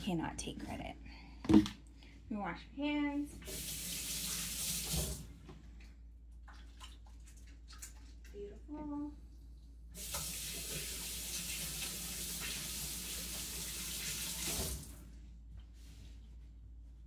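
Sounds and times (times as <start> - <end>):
tap water running: 3.4 - 5.6, 9.9 - 15.1.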